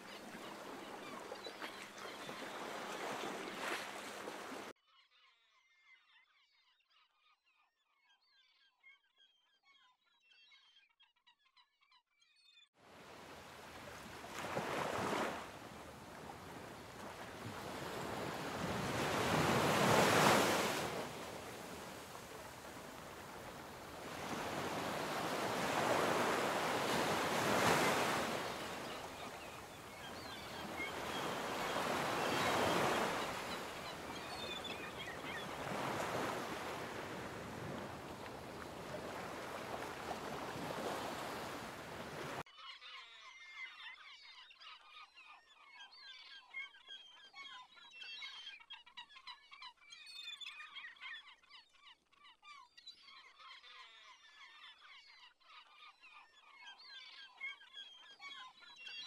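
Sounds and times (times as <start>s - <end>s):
flock of birds calling: 0.0s - 4.7s, 13.3s - 42.9s
sea waves breaking on shore: 0.0s - 4.7s, 12.9s - 42.4s.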